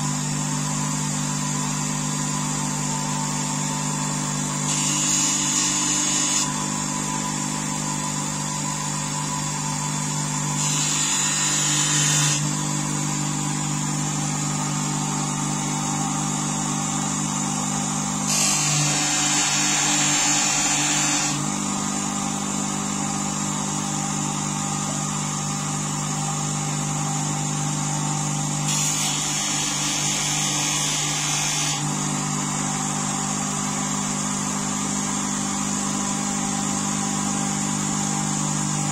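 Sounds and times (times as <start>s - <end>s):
bench grinder motor humming: 0.0s - 38.9s
blade hissing on polishing wheel: 4.7s - 6.6s, 10.5s - 12.8s, 18.2s - 21.5s, 28.6s - 32.0s.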